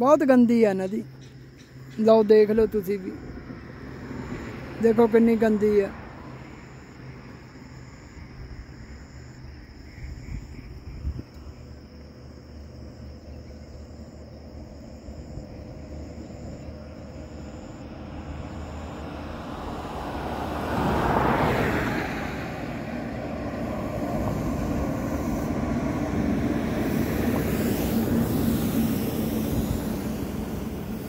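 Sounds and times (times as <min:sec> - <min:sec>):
engine low hum: 0:01.0 - 0:31.0
vehicle passing: 0:02.5 - 0:08.2, 0:15.2 - 0:31.0.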